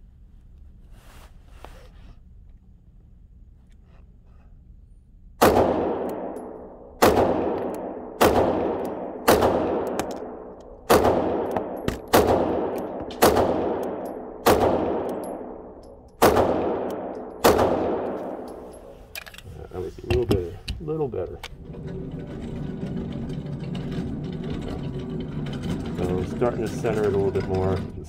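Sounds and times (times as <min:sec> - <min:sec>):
pistol shots echoing: 0:05.4 - 0:18.9.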